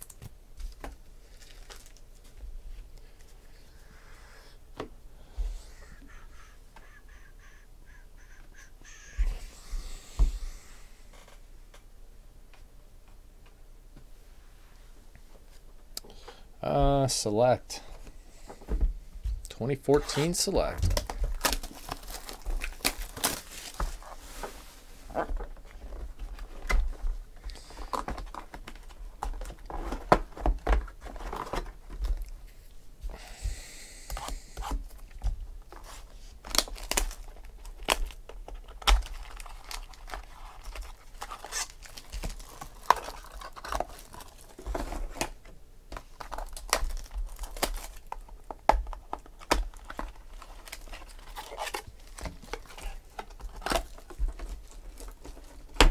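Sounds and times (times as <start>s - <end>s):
card packs crinkling and rustling: 0.0s - 3.4s, 19.6s - 32.6s, 34.2s - 55.9s
shrink wrap tearing: 21.0s - 24.2s, 36.5s - 44.6s, 46.1s - 48.2s, 49.3s - 55.8s.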